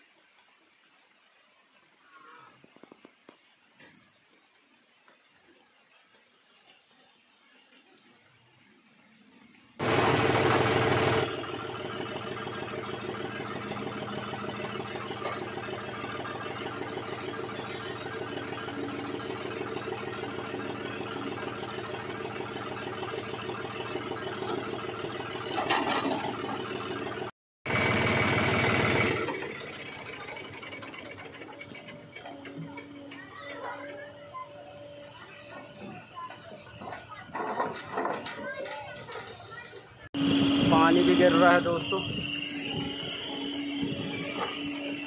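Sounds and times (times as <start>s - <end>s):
diesel engines running: 9.8s - 45.0s
backhoe digging soil: 23.9s - 34.0s.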